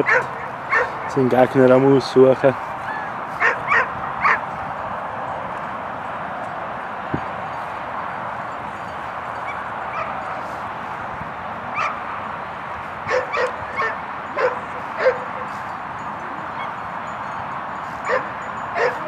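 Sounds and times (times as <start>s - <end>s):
dog barking: 0.0s - 1.1s, 3.4s - 4.4s, 11.7s - 12.0s, 13.1s - 15.6s, 18.0s - 19.0s.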